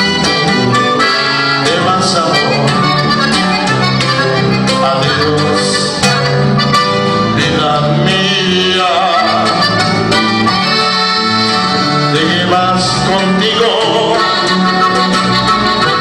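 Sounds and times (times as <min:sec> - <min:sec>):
button accordion melody: 0:00.0 - 0:16.0
electric bass line: 0:00.0 - 0:16.0
strummed guitar: 0:00.0 - 0:16.0.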